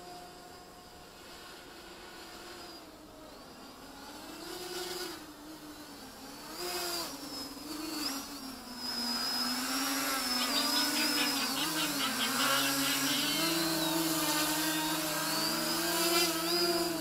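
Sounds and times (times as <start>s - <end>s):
quadcopter propellers buzzing: 0.0s - 17.0s
fast chattering: 10.3s - 15.1s.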